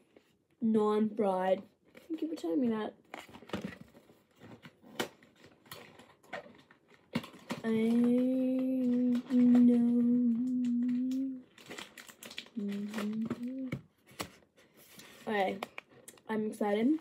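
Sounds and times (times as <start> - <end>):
cardboard packaging rustling: 3.0 - 16.1
girl humming: 7.7 - 11.5, 12.6 - 13.8.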